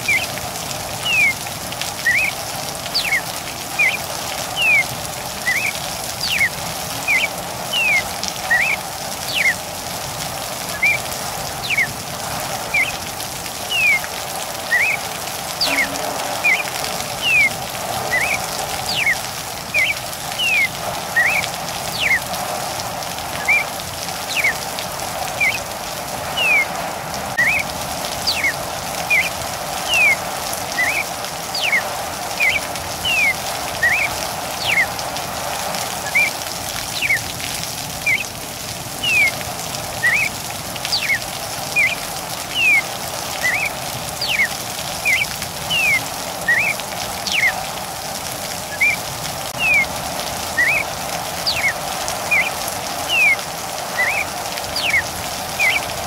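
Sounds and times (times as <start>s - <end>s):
steady rain: 0.0s - 56.0s
cardinal singing whistled notes: 1.0s - 1.4s, 2.0s - 2.4s, 3.0s - 3.2s, 4.6s - 4.9s, 5.5s - 9.6s, 10.7s - 11.0s, 11.6s - 11.9s, 12.6s - 13.0s, 13.7s - 22.2s, 23.4s - 23.7s, 24.3s - 24.6s, 25.4s - 25.7s, 26.4s - 26.7s, 27.4s - 30.2s, 30.8s - 34.9s, 36.0s - 37.2s, 39.0s - 39.4s, 40.0s - 40.3s, 40.9s - 41.2s, 41.8s - 47.6s, 48.7s - 49.0s, 49.6s - 49.9s, 50.6s - 53.4s, 54.0s - 55.9s.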